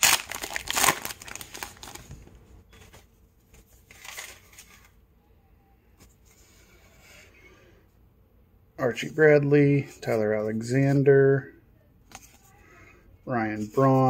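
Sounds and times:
wrapper tearing and crinkling: 0.0 - 2.0.

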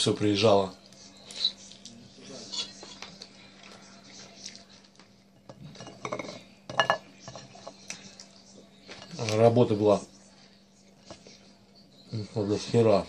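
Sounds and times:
chewing: 2.8 - 5.8
cutlery clinking on ceramic plate: 5.4 - 7.8.

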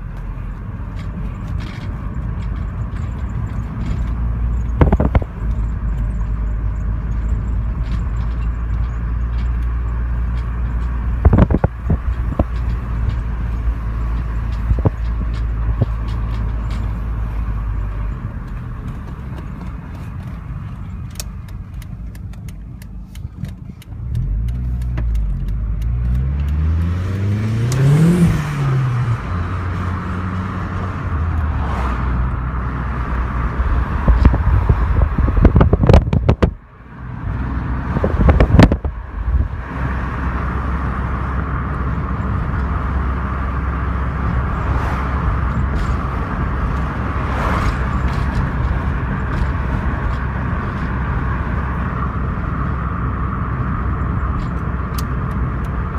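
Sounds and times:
car engine accelerating: 0.0 - 55.9
road hum: 0.0 - 55.9.

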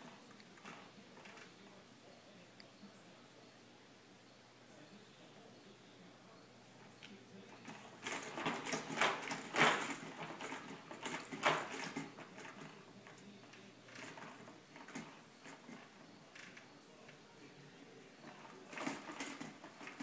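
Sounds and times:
baby jumper rattling and clicking: 7.5 - 17.2, 18.2 - 20.0.

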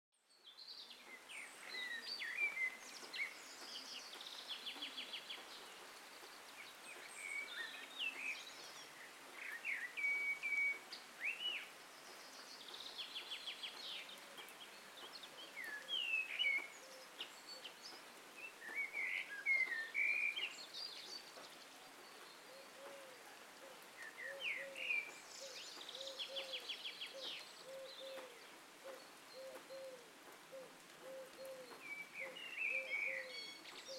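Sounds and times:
songbirds chirping and trilling: 0.2 - 33.9
steady background hiss: 0.3 - 33.9
dove cooing: 22.5 - 24.8, 25.4 - 33.3.

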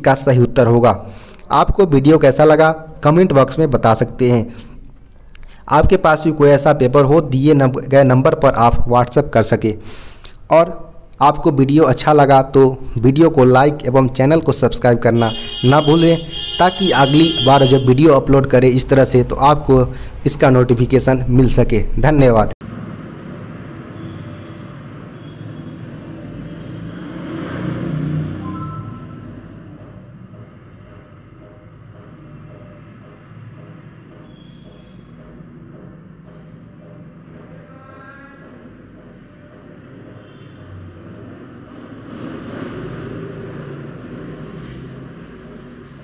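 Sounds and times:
vehicle passing by: 22.7 - 30.0, 40.8 - 46.0.

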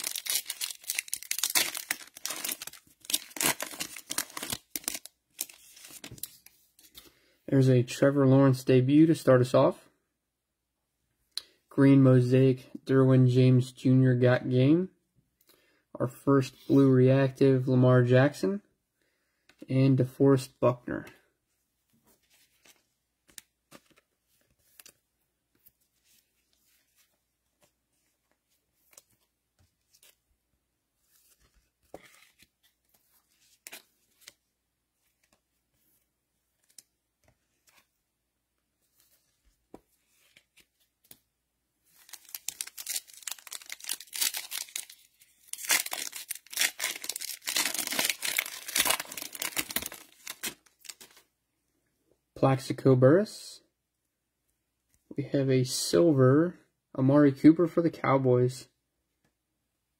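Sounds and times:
foil wrapper tearing and crinkling: 0.0 - 6.1, 42.0 - 51.1.

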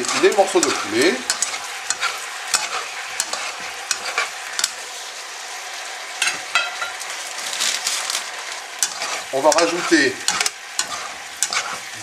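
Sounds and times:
utensil scraping pan: 0.0 - 4.9, 8.8 - 12.0
chicken sizzling in a wok: 0.0 - 12.0.

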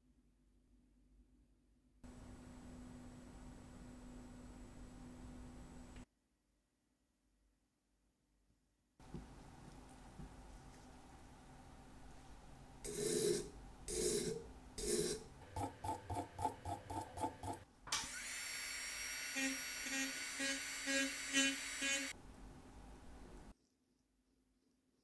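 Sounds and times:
rotary tool whining: 18.0 - 22.1.

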